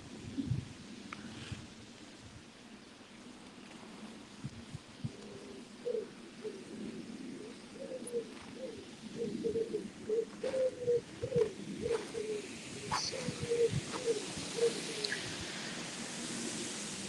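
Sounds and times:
pigeon cooing: 5.0s - 15.4s.

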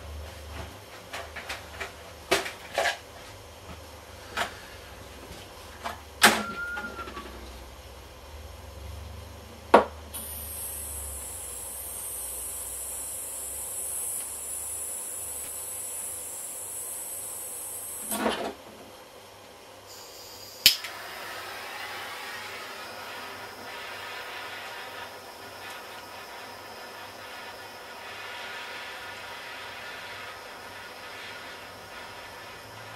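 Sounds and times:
pressurised gas hissing: 10.1s - 18.4s, 19.8s - 32.9s.

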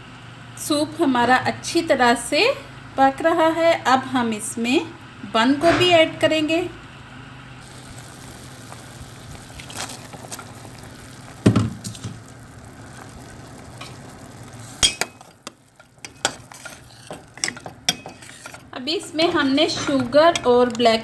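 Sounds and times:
soup simmering with hiss: 6.9s - 21.0s
utensil clinking on metal pot: 14.8s - 18.7s, 19.6s - 21.0s.

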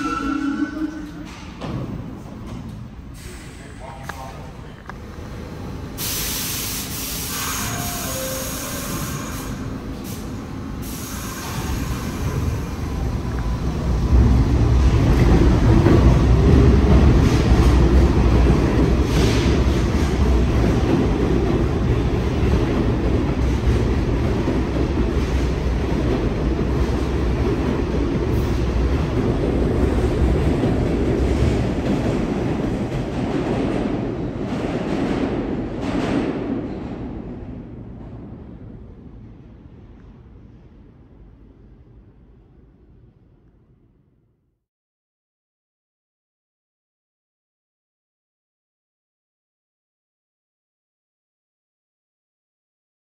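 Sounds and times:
subway train rumbling past: 0.0s - 44.1s.

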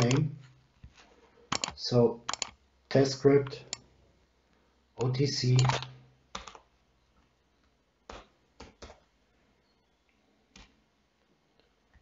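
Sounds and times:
keyboard keystrokes: 1.5s - 2.6s, 5.0s - 6.6s.

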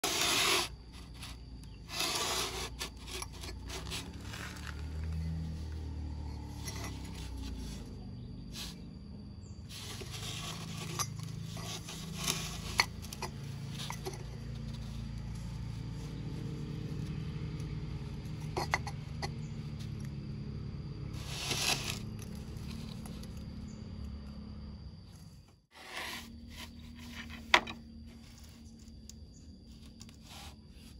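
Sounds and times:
metal scraping on wooden bench: 0.0s - 7.9s, 9.7s - 15.0s, 21.2s - 22.9s, 25.7s - 27.9s.

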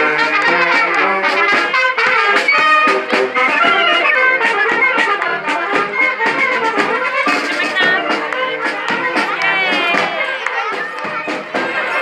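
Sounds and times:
drum beats: 0.0s - 12.0s
marching brass band playing: 0.0s - 12.0s.

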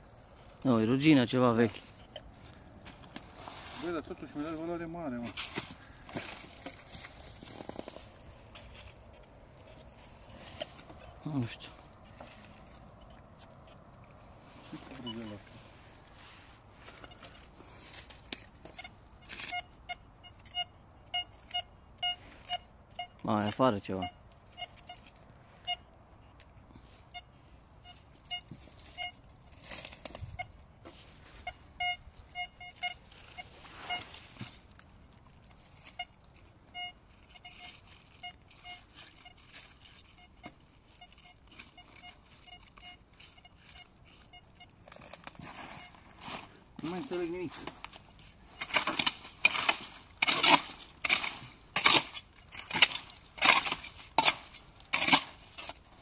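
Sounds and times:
dry leaves rustling: 0.0s - 19.6s, 27.6s - 56.0s
metal detector beeps: 1.9s - 2.3s, 14.8s - 15.4s, 16.9s - 17.5s, 18.7s - 25.9s, 27.1s - 29.3s, 30.2s - 30.6s, 31.2s - 34.4s, 35.8s - 44.9s, 45.6s - 46.1s.

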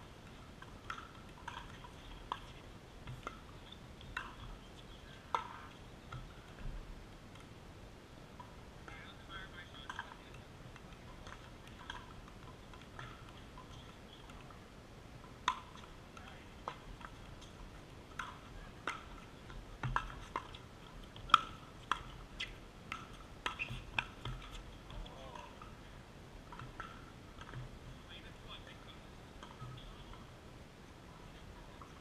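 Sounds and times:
ball bouncing on court: 0.2s - 7.5s, 15.2s - 25.7s, 26.5s - 27.8s, 29.4s - 30.3s.

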